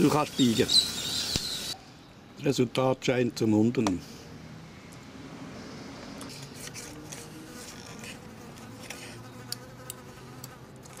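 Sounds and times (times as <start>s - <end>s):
flying insect buzzing: 7.0s - 11.0s.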